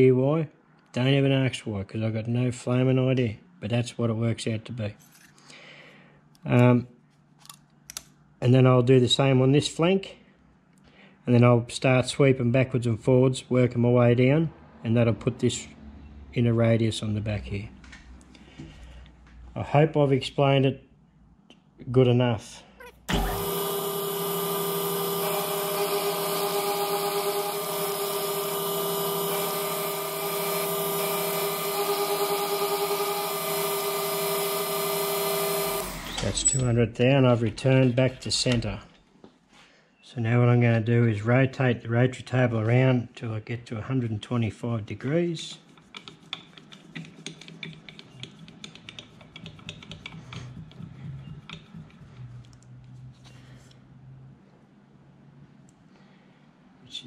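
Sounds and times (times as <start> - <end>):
milling machine whine and cutting: 23.1 - 36.4.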